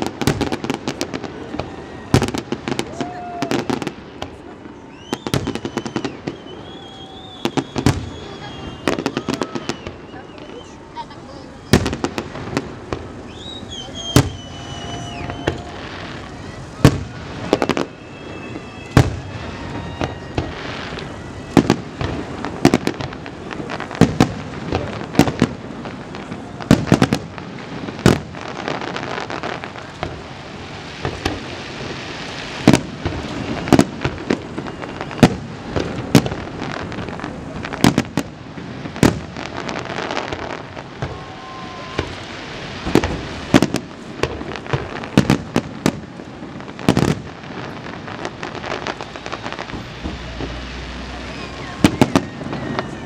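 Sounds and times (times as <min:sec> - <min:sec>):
steady background noise: 0:00.0 - 0:53.0
firework shells bursting: 0:11.7 - 0:53.0.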